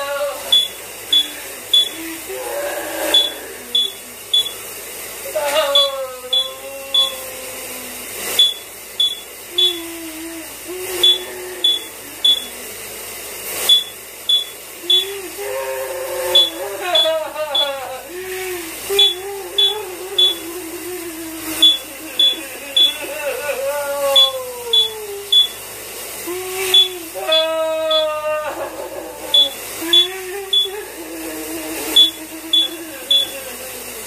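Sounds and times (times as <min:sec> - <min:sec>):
shower water running: 0:00.0 - 0:34.0
smoke alarm beeping: 0:00.3 - 0:02.3, 0:03.0 - 0:10.2, 0:10.9 - 0:12.6, 0:13.4 - 0:15.4, 0:16.3 - 0:18.0, 0:18.7 - 0:25.8, 0:26.5 - 0:28.3, 0:29.2 - 0:30.9, 0:31.8 - 0:33.8
man singing long wavering tones: 0:01.2 - 0:04.2, 0:05.3 - 0:08.0, 0:09.5 - 0:12.7, 0:14.8 - 0:25.4, 0:26.2 - 0:34.0.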